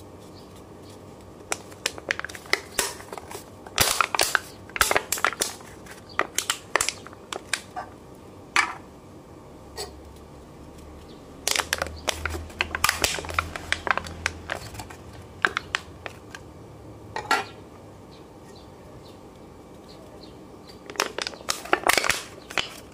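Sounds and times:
aluminium cans crackling: 0.6 - 8.0, 9.8 - 16.5, 20.6 - 22.9.

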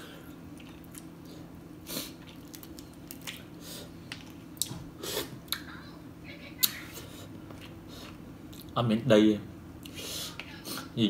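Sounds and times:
steady low hum: 0.0 - 11.0
chewing: 0.3 - 1.4.

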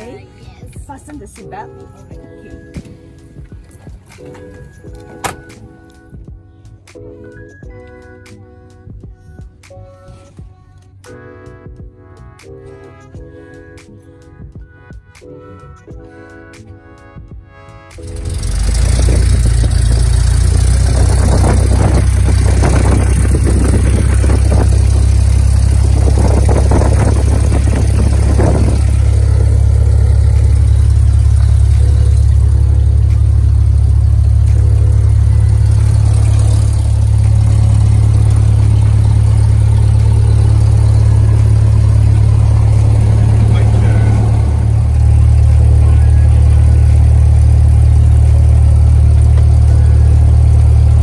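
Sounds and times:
light aircraft engine and propeller: 18.0 - 51.0.

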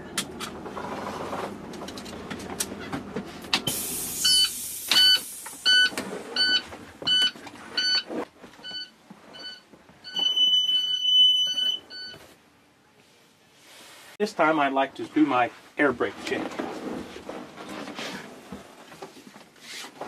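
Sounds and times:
electronic alarm beeping: 4.2 - 12.2
footsteps on bus floor: 6.6 - 10.4
long steady alarm tone: 8.6 - 12.2.

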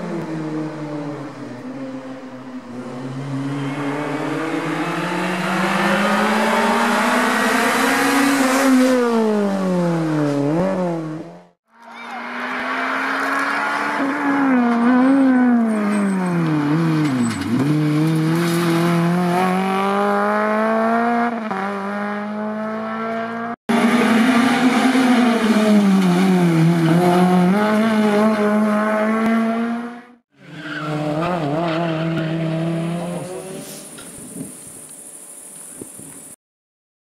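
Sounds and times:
car engine revving hard: 2.8 - 11.4, 16.5 - 30.2.

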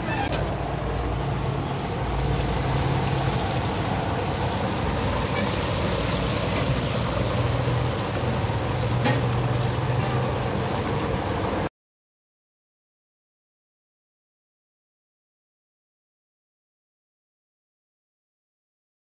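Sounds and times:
chicken sizzling in hot oil: 1.3 - 11.7.

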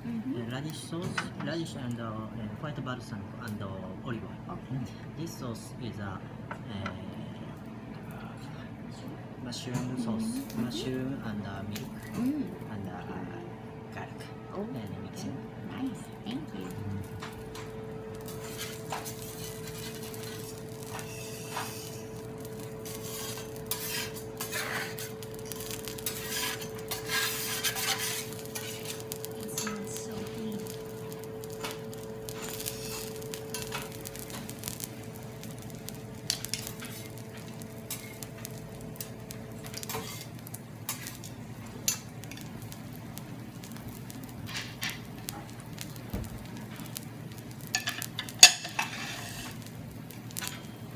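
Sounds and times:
food sizzling on a griddle: 0.4 - 3.9, 9.6 - 13.3, 15.2 - 50.9
metal utensils scraping a plate: 18.3 - 22.1, 22.8 - 29.8, 39.8 - 40.3, 47.8 - 49.6.

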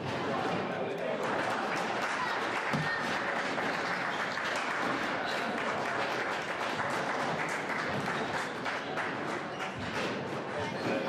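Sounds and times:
crowd applauding: 1.1 - 9.9.

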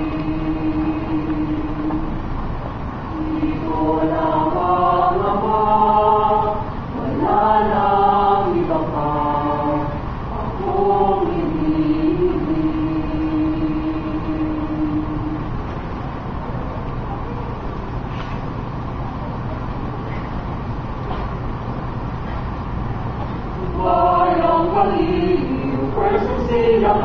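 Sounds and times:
choir singing: 0.0 - 2.2, 3.1 - 15.6, 23.6 - 27.0.

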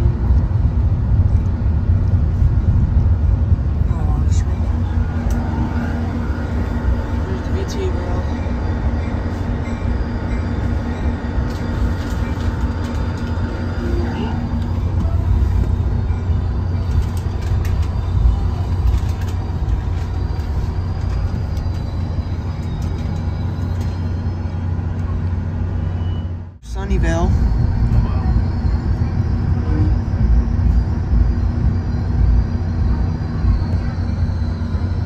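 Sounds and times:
train rumbling: 0.0 - 35.0
clicks from train wheels: 16.8 - 24.2.

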